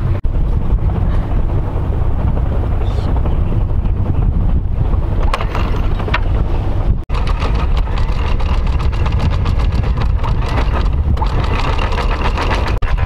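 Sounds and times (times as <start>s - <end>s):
boat engine droning: 0.0s - 13.0s
anchor chain clicks: 7.1s - 13.0s.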